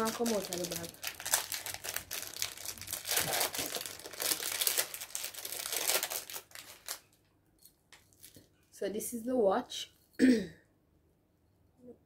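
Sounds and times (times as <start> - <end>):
plastic bag crinkling: 0.0 - 7.2, 8.0 - 8.6.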